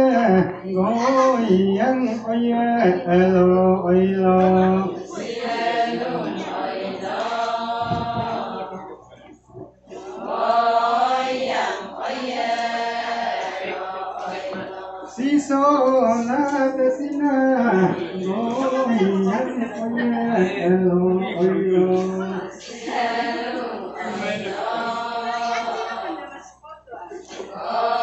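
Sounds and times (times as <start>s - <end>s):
women's chorus singing in unison: 4.4s - 9.1s, 9.9s - 16.8s, 17.4s - 28.0s.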